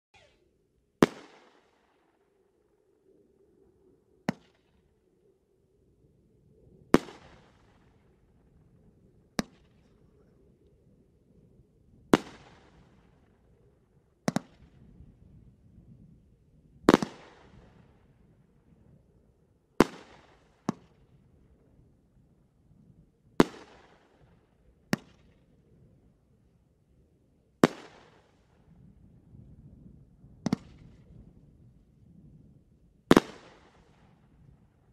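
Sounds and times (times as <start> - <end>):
fireworks bangs with echo: 33.1 - 34.0.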